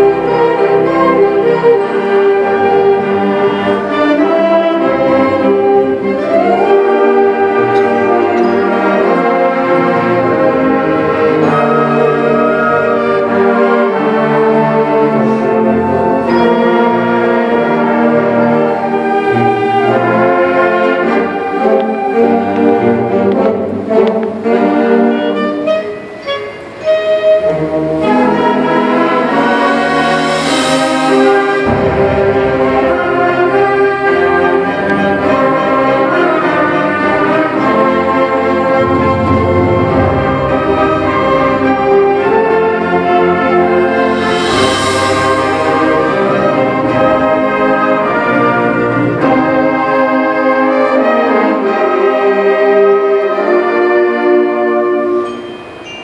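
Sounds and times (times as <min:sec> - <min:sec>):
concert band playing: 0:00.0 - 0:52.6
cymbal crashes: 0:29.1 - 0:33.7, 0:44.0 - 0:47.4.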